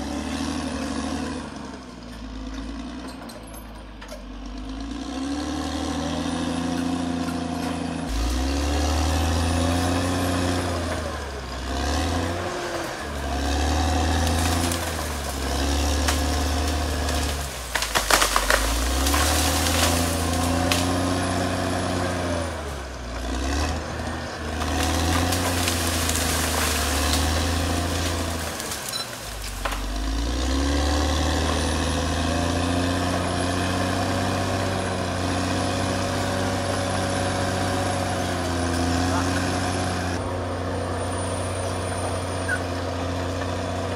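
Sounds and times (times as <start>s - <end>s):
bulldozer diesel engine working: 0.0s - 43.9s
sharp cracks: 14.1s - 20.9s.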